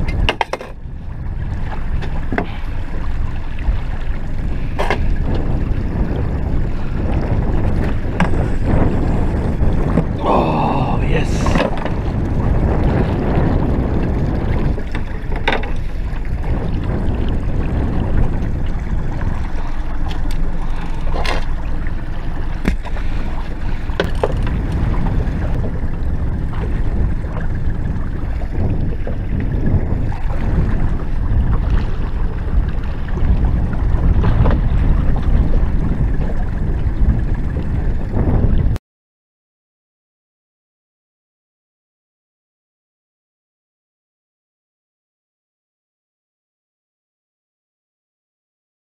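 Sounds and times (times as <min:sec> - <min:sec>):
water splashing against boat hull: 0:00.0 - 0:38.8
wind buffeting microphone: 0:00.0 - 0:38.8.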